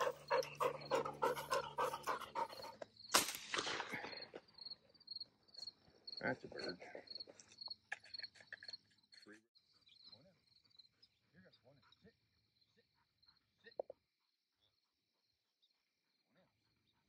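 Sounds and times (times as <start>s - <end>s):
dog panting: 0.0s - 3.0s, 10.1s - 13.6s
crickets chirping: 0.0s - 17.0s.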